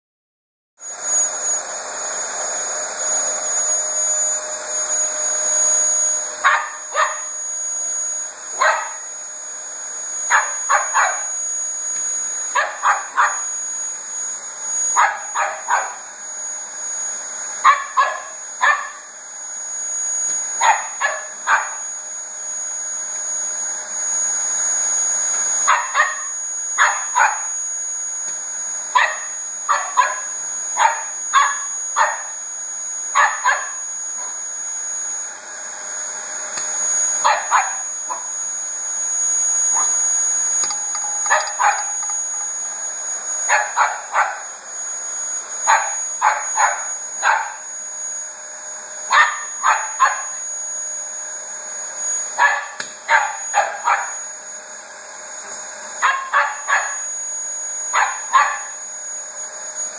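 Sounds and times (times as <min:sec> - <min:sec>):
vacuum cleaner motor whine: 0:00.8 - 0:59.9
dog barking: 0:06.4 - 0:07.3, 0:08.5 - 0:09.0, 0:10.3 - 0:11.3, 0:12.5 - 0:13.5, 0:15.0 - 0:16.0, 0:17.6 - 0:19.0, 0:20.6 - 0:21.8, 0:25.7 - 0:27.5, 0:28.9 - 0:32.3, 0:33.2 - 0:34.3, 0:37.2 - 0:38.2, 0:39.7 - 0:40.0, 0:41.0 - 0:42.1, 0:43.5 - 0:44.4, 0:45.7 - 0:47.6, 0:49.1 - 0:50.4, 0:52.4 - 0:54.2, 0:56.0 - 0:57.0, 0:57.9 - 0:58.8.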